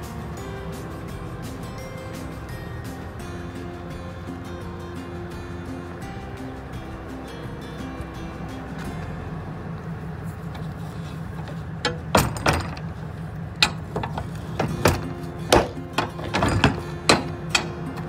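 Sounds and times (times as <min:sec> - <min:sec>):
low hum: 0:00.0 - 0:18.0
knocks and thumps: 0:11.4 - 0:13.0, 0:13.6 - 0:18.0.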